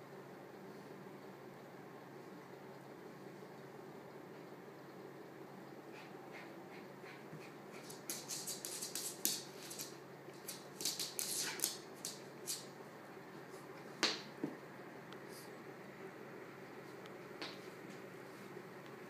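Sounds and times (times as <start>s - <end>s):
dog scuffling with plush toy: 7.7s - 12.7s.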